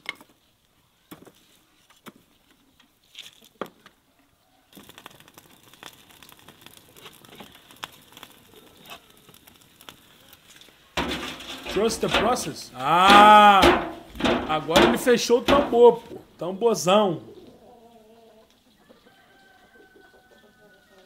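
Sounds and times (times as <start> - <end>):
wood fire crackling: 4.7 - 16.5
firewood knocking: 11.0 - 16.2.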